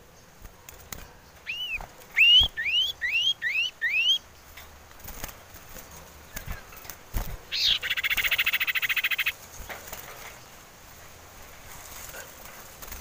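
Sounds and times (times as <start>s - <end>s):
bird call and dry trill: 7.5s - 9.4s.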